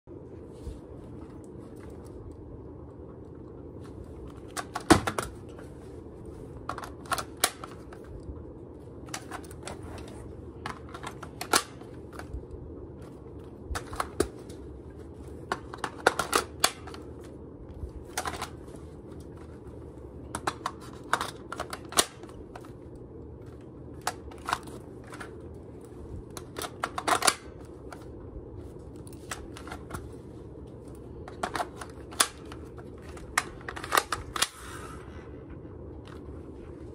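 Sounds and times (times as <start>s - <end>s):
airsoft rifle clicks and clacks: 26.3s - 28.1s.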